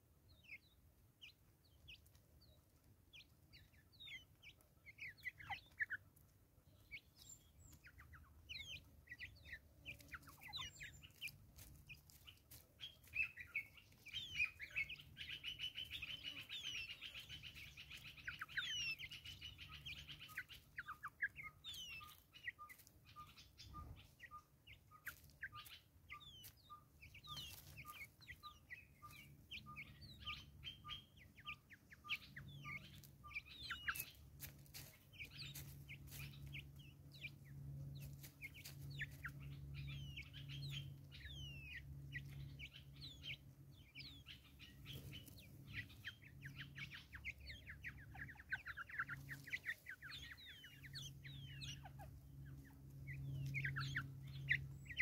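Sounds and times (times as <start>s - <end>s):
birds chirping and calling: 0.0s - 55.0s
birds pecking grain clicks: 9.9s - 15.0s, 32.8s - 36.7s.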